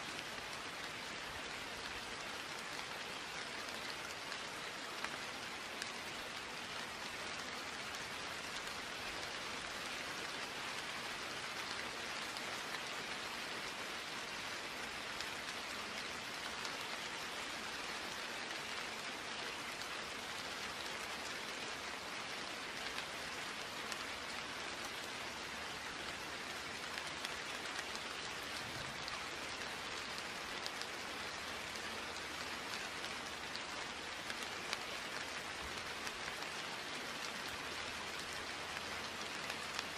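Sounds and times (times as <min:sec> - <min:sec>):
steady rain hiss: 0:00.0 - 0:39.9
raindrop ticks: 0:25.8 - 0:39.9.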